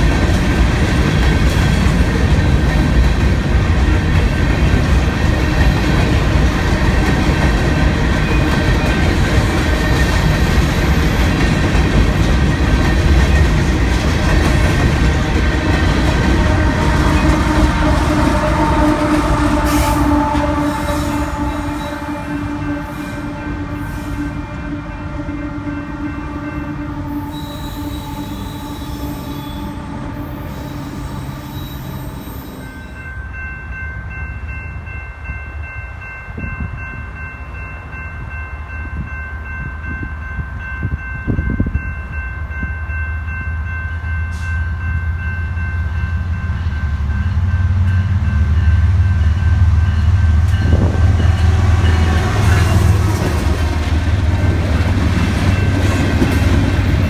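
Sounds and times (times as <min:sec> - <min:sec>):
crossing warning bell ringing: 0:00.0 - 0:57.0
diesel locomotives rumbling: 0:00.0 - 0:57.0
locomotive horn: 0:16.0 - 0:33.0, 0:50.4 - 0:57.0.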